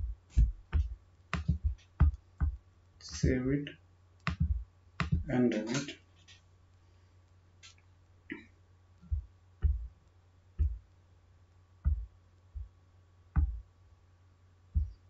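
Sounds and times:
dull low thumps: 0:00.0 - 0:03.7, 0:04.3 - 0:05.4, 0:09.0 - 0:10.0, 0:10.6 - 0:10.9, 0:11.8 - 0:12.8, 0:13.4 - 0:13.7, 0:14.7 - 0:15.0.

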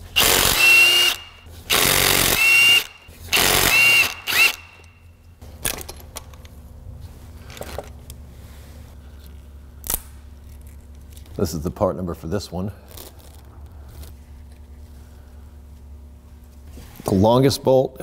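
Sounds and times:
power tool motor whine: 0:00.2 - 0:04.9.

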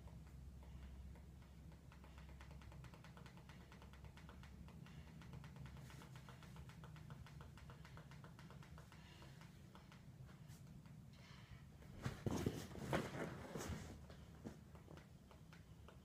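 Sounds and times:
fast faint ticks: 0:00.0 - 0:11.0.

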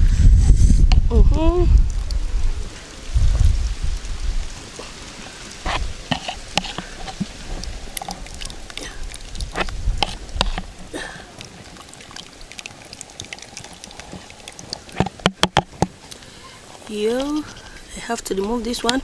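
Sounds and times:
thick sauce pouring and dripping: 0:01.8 - 0:17.9
small plops and ticks: 0:04.7 - 0:16.3.

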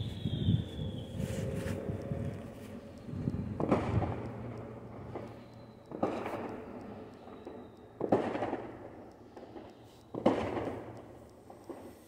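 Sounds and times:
faint fireworks pops: 0:03.2 - 0:12.0
fireworks bangs: 0:05.9 - 0:06.5, 0:08.0 - 0:08.8, 0:09.4 - 0:12.0.

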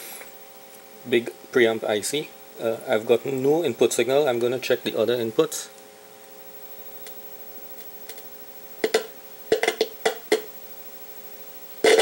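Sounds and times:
electrical hum: 0:00.0 - 0:12.0
sharp clicks and crackles: 0:07.0 - 0:10.5.

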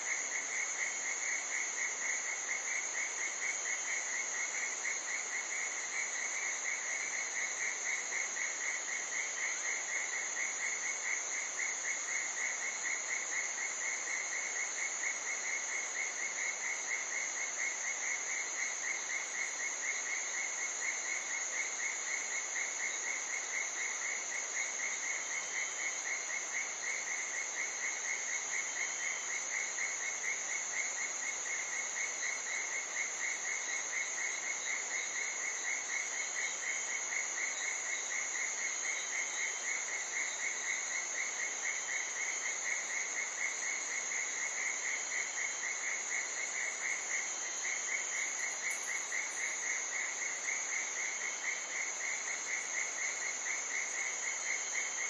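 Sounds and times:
insect high-pitched drone: 0:31.7 - 0:55.0
pulsing insect trill: 0:41.6 - 0:55.0.

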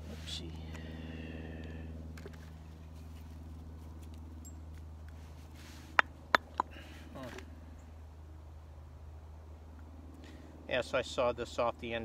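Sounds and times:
steady low hum: 0:00.0 - 0:12.0
hatchet scraping wood: 0:06.0 - 0:06.7
wood knocking against steel: 0:06.4 - 0:06.7.

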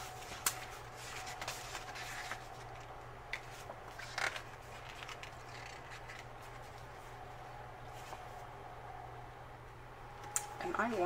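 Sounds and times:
paper crinkle: 0:00.0 - 0:07.2
paper rustling: 0:00.0 - 0:07.2.

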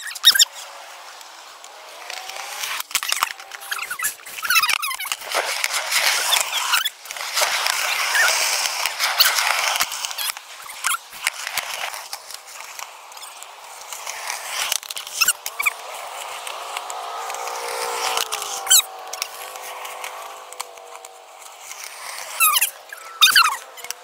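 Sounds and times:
skateboard wheels rolling on concrete: 0:00.0 - 0:24.0
skateboard clacking on ground: 0:00.1 - 0:24.0.

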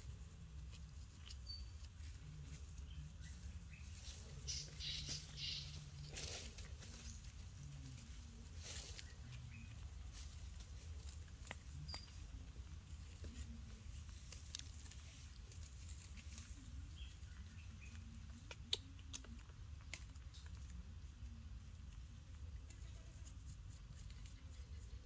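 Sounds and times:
low steady hum: 0:00.0 - 0:25.0
monkey nibbling banana clicks: 0:18.3 - 0:20.8.

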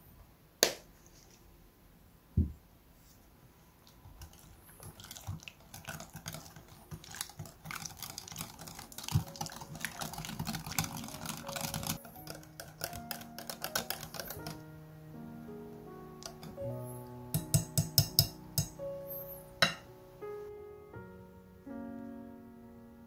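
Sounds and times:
wet mixing sounds: 0:03.8 - 0:14.6, 0:16.2 - 0:16.6
whisk clicking against glass bowl: 0:04.2 - 0:14.6, 0:17.3 - 0:18.8
soft music: 0:06.2 - 0:23.0.

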